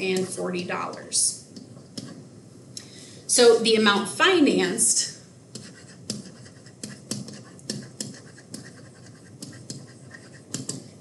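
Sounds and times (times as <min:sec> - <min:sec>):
stylus tapping on tablet screen: 0:00.0 - 0:02.2, 0:05.5 - 0:11.0.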